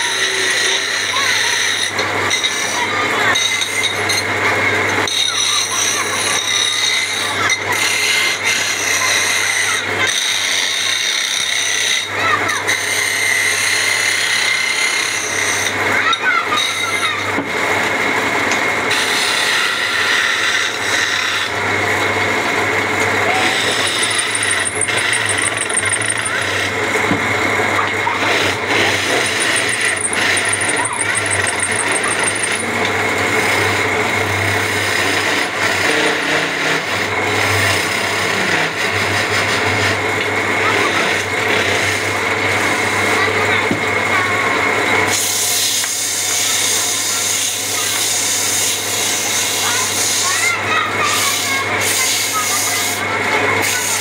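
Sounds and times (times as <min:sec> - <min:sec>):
wood lathe motor hum: 0:00.0 - 0:04.2, 0:05.4 - 0:12.1, 0:12.7 - 0:15.8, 0:18.6 - 0:43.2
chisel rasping on spinning wood: 0:05.0 - 0:12.1, 0:23.2 - 0:33.6.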